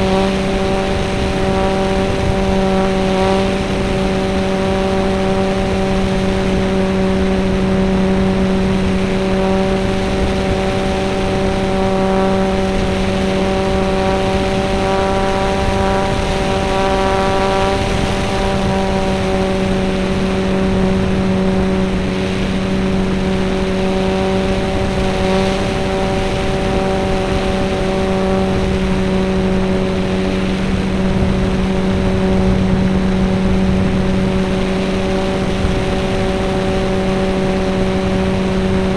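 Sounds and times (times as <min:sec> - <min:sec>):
model plane motor and propeller: 0:00.0 - 0:38.9
rushing air: 0:00.0 - 0:38.9.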